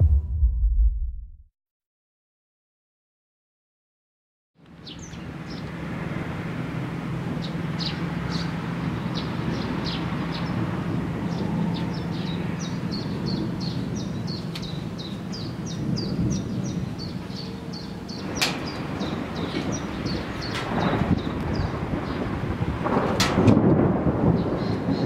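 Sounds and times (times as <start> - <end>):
low rumble: 0.0 - 1.5
small birds chirping: 4.7 - 5.8, 7.4 - 10.7, 11.3 - 22.5.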